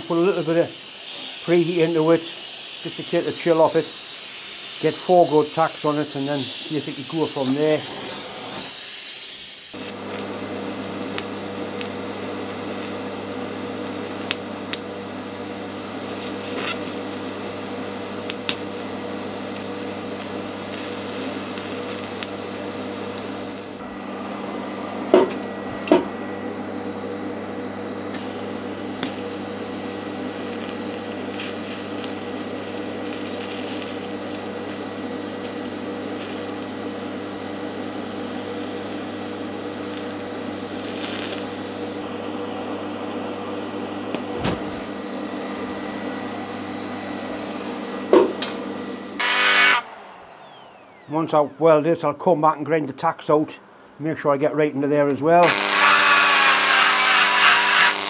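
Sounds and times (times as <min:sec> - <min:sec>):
gas torch hissing: 0:00.0 - 0:23.8, 0:28.1 - 0:42.1, 0:44.1 - 0:48.2
welding arc buzzing: 0:00.0 - 0:42.1, 0:43.9 - 0:52.0, 0:55.4 - 0:58.0.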